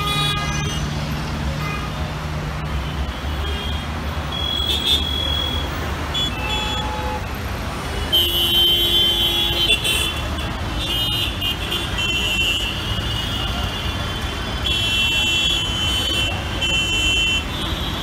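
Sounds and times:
traffic engine rumble: 0:00.0 - 0:18.0.

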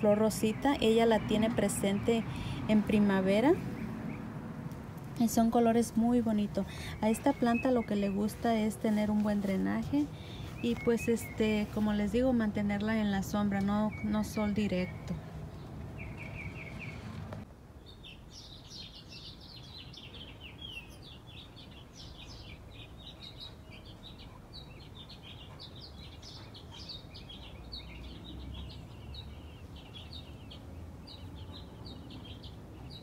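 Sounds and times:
small birds chirping: 0:00.0 - 0:33.0.

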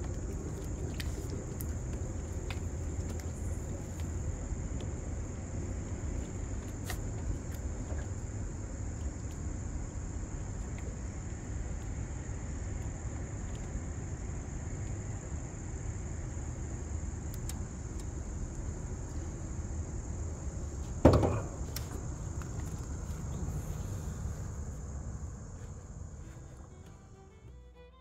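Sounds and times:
insects trilling: 0:00.0 - 0:28.0
low steady rumble: 0:00.0 - 0:28.0.

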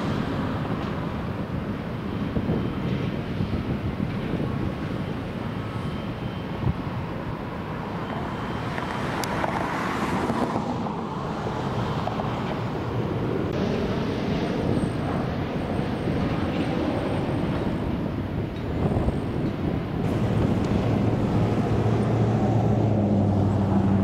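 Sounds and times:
heavy machinery engine noise: 0:00.0 - 0:24.0.

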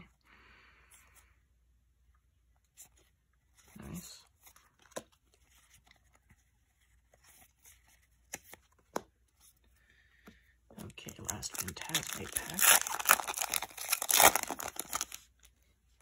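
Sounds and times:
cards sliding and fanning: 0:02.6 - 0:09.7.

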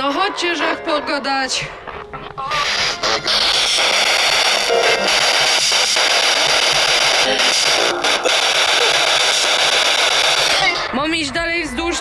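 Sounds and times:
radio static hiss: 0:02.3 - 0:11.0.

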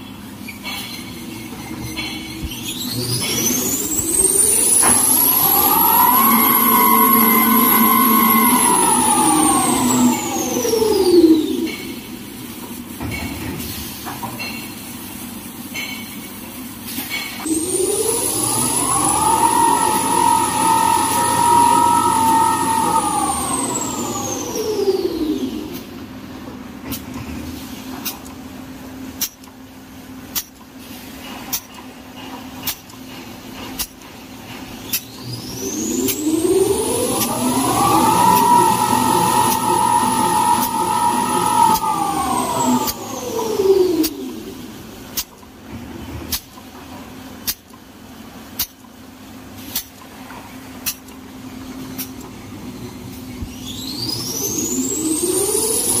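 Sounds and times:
machine motor whine and hum: 0:02.8 - 0:11.9, 0:17.4 - 0:29.1, 0:35.0 - 0:47.0, 0:50.1 - 0:56.0.

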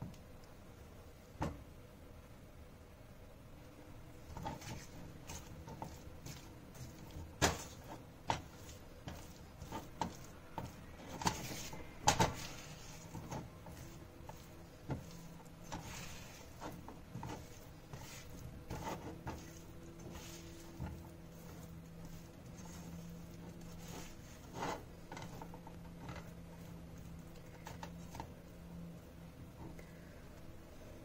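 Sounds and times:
spoon scraping a pan: 0:04.3 - 0:26.8.

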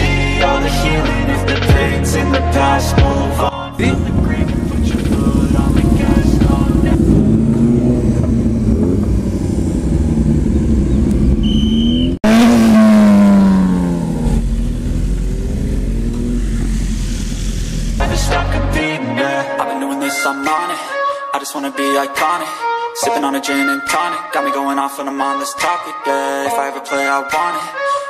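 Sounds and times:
motorbikes revving past: 0:03.8 - 0:18.1.

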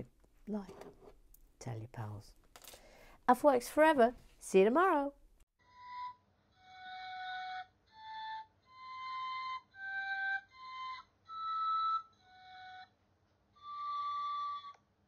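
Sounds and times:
slow flute-like melody: 0:05.6 - 0:15.0.

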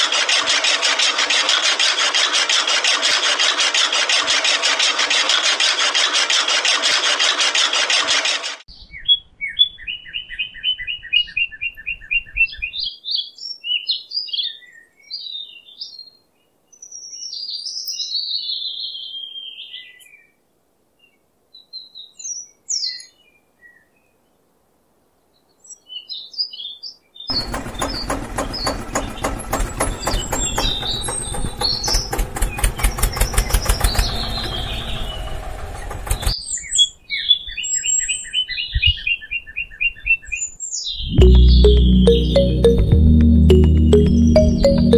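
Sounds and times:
birds chirping: 0:27.2 - 0:44.9
motor fast regular ticking: 0:27.3 - 0:34.4.

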